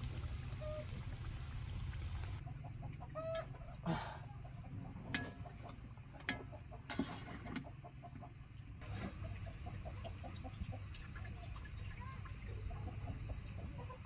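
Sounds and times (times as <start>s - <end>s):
dough frying in hot oil: 0.0s - 3.1s, 8.7s - 14.0s.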